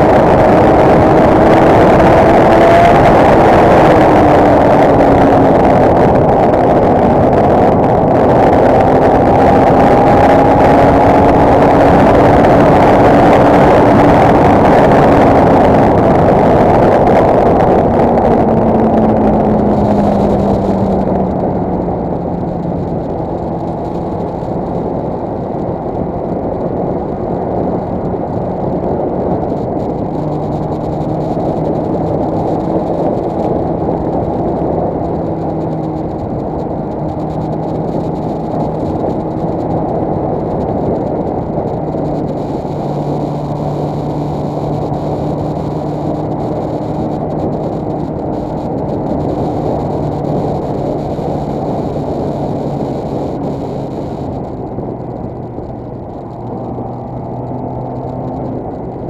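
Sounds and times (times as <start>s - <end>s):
motorcycle engine: 0.0s - 59.0s
wind rush: 0.0s - 59.0s.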